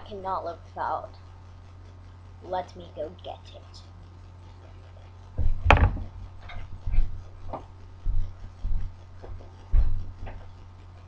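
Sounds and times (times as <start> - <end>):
low electrical hum: 0.0 - 11.0
wooden chair knock: 5.4 - 6.1
footsteps walking away: 5.4 - 10.6.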